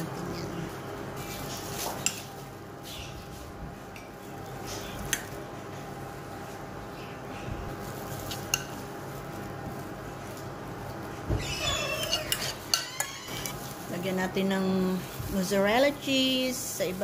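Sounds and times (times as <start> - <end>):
faint hum: 0.0 - 17.0
squeaky spoon scraping: 11.4 - 13.6.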